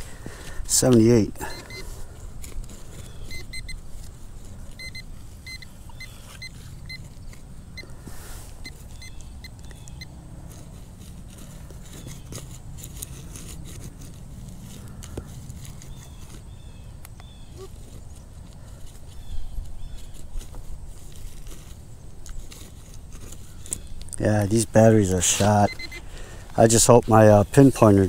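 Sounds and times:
metal detector beeping: 0:00.6 - 0:02.0, 0:02.8 - 0:10.2, 0:24.2 - 0:28.0
small clicks: 0:08.6 - 0:10.1.

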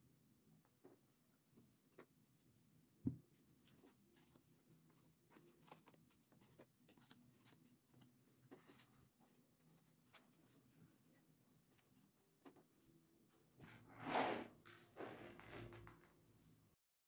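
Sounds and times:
paper cards rustling and clicking: 0:03.7 - 0:10.6.

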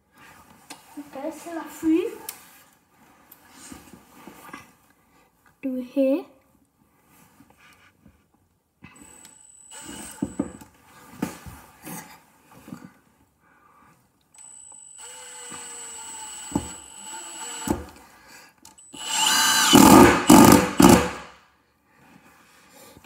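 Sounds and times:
impact driver motor whine: 0:09.0 - 0:10.6, 0:14.4 - 0:17.9, 0:18.8 - 0:21.3
impact driver hammering: 0:15.3 - 0:17.9, 0:19.0 - 0:21.3.

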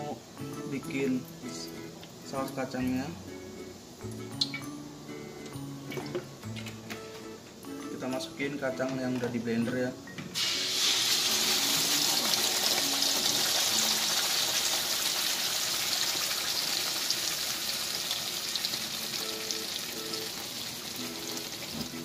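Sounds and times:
paste sizzling in hot oil: 0:10.4 - 0:22.0.

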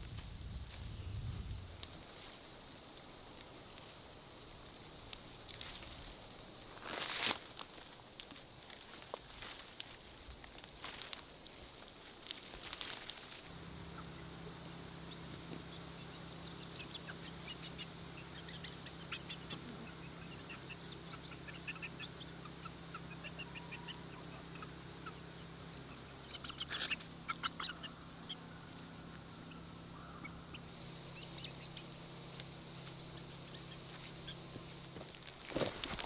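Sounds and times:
chickens clucking and peeping: 0:00.1 - 0:36.0.

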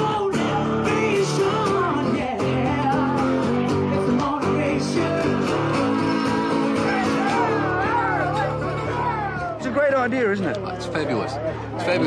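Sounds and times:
woman singing: 0:00.0 - 0:07.5
blues guitar: 0:00.0 - 0:12.0.

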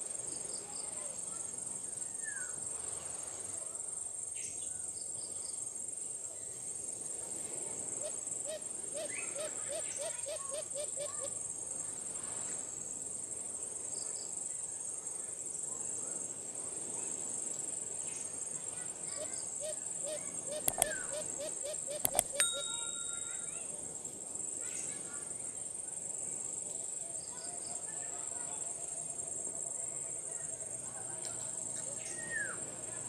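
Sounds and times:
insects droning: 0:00.0 - 0:33.0
dove cooing: 0:08.0 - 0:11.3, 0:19.2 - 0:22.7.

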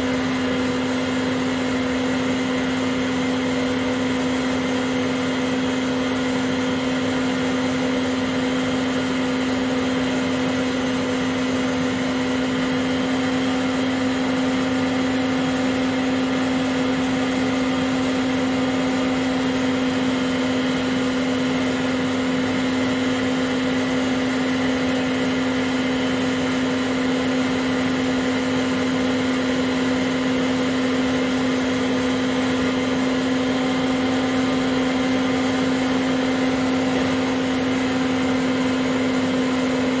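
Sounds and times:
vacuum cleaner motor humming: 0:00.0 - 0:40.0.

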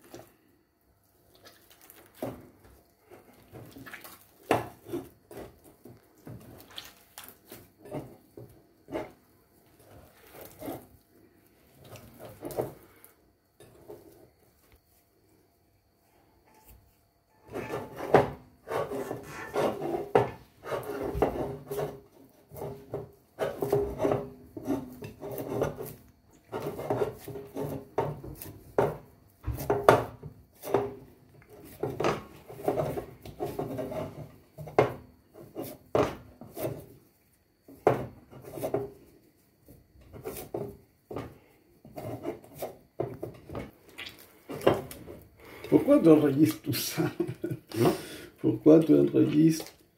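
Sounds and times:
hands kneading dough: 0:00.0 - 0:15.4.

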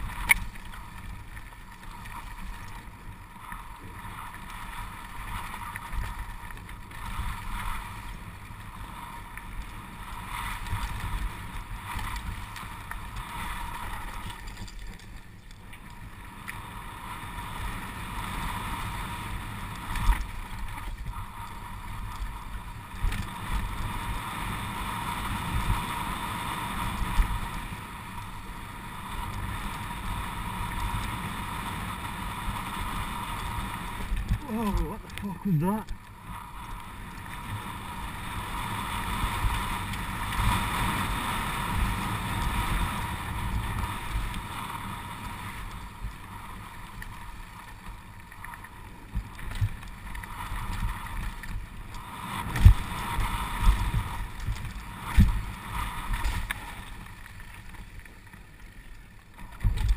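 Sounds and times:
bike tyres rumbling on dirt trail: 0:00.0 - 0:59.9
wind noise on microphone: 0:49.1 - 0:56.5.

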